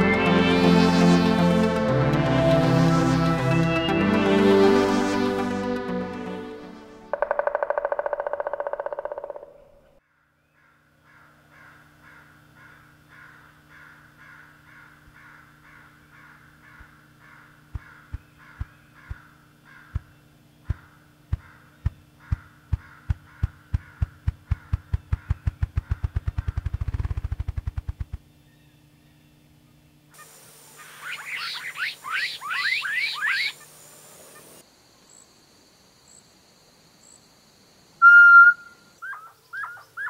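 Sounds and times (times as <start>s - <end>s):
grouse wingbeat drumming thumps: 7.1s - 9.6s, 17.6s - 28.3s
repeating bird call: 7.1s - 10.0s, 30.2s - 34.6s, 38.0s - 40.0s.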